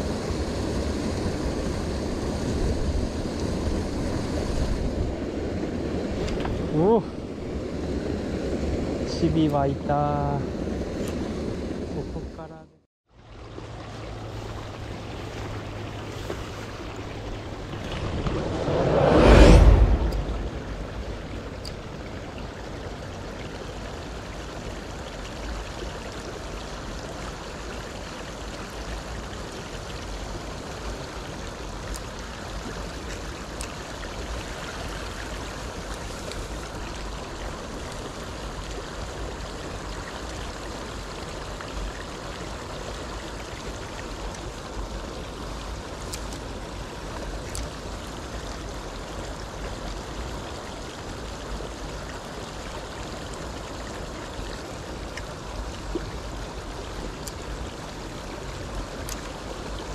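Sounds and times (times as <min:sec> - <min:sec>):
stream flowing: 0:00.0 - 0:59.9
water spilling over a weir: 0:19.6 - 0:59.9.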